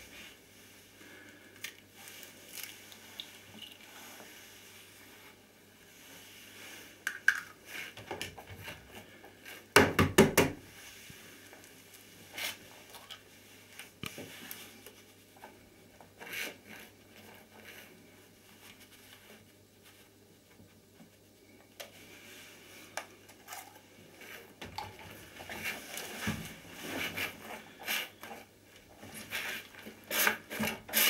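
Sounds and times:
egg shell cracking: 7.1s - 7.6s.

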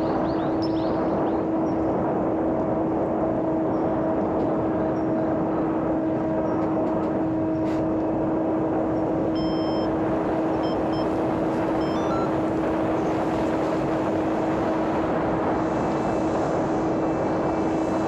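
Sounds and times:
rush of air: 10.1s - 18.0s.

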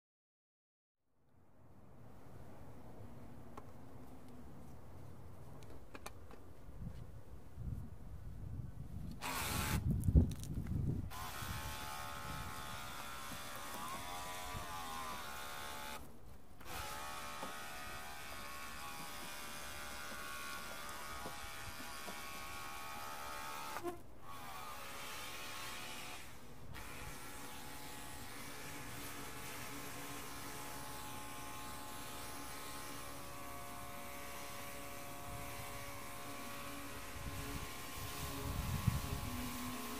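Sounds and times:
electric pump motor whine: 9.2s - 9.8s, 11.1s - 16.0s, 16.6s - 39.9s.

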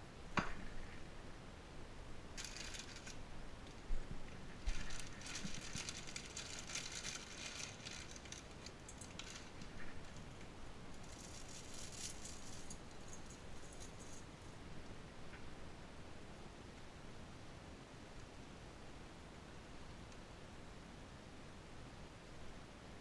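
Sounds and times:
plastic packet crinkling: 2.4s - 3.2s, 4.6s - 14.2s.

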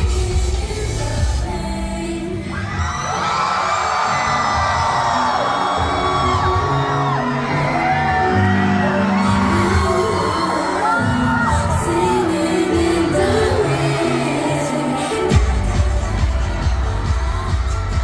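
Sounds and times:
woman singing pop song: 0.0s - 3.2s, 9.2s - 18.0s
audience whooping and cheering: 2.5s - 18.0s
backing track: 3.9s - 18.0s.

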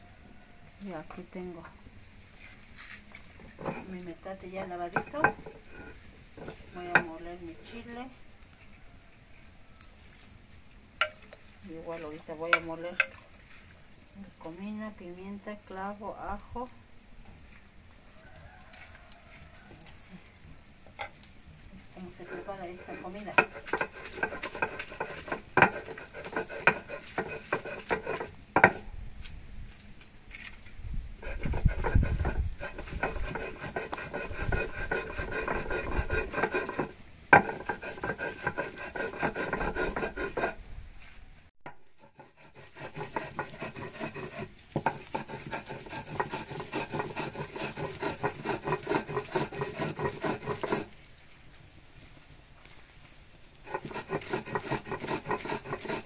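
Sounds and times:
stone grinding on stone: 3.4s - 4.0s, 4.6s - 7.2s, 22.0s - 28.9s, 31.2s - 40.6s, 41.7s - 51.0s, 53.6s - 56.0s.

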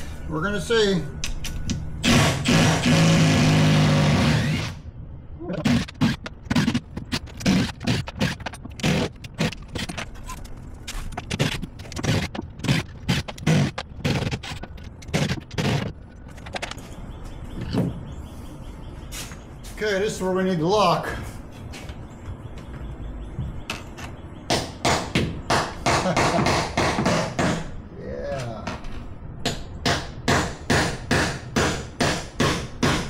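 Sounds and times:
knocks clicks and scrapes: 5.6s - 18.1s.

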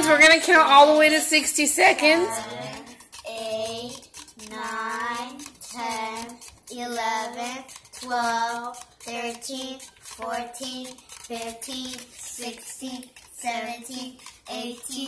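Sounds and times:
girl chanting in sing-song: 2.0s - 3.9s.

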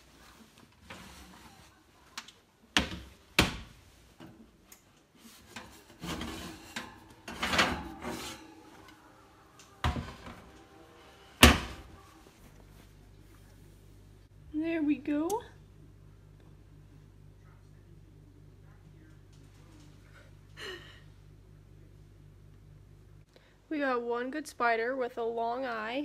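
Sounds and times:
baking pans scraping wire racks: 5.4s - 8.7s
metal pans clanking: 5.5s - 8.7s.

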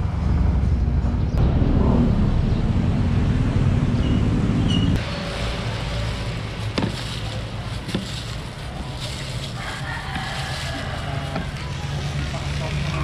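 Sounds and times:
street noise rumble: 0.0s - 13.0s.

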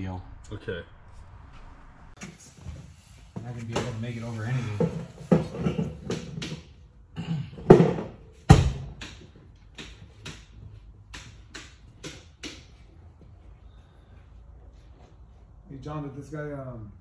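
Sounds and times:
sharp metal knocks and clicks: 8.6s - 12.8s.

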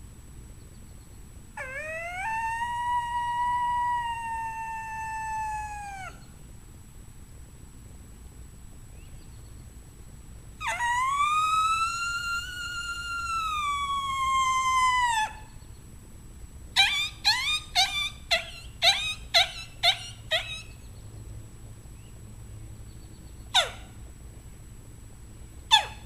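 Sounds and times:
coyote howler call: 1.6s - 6.3s, 10.6s - 15.6s, 16.8s - 20.8s, 23.5s - 24.0s, 25.7s - 26.0s.

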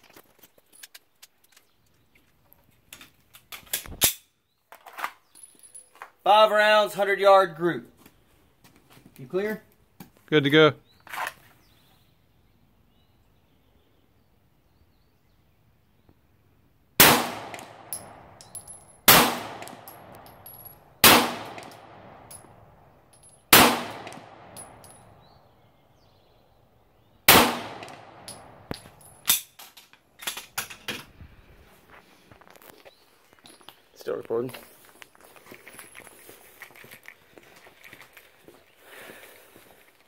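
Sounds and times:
pistol shots with echo: 17.0s - 22.6s, 23.5s - 25.2s, 27.3s - 29.0s
light metallic tinks: 17.9s - 19.0s, 24.5s - 25.2s.

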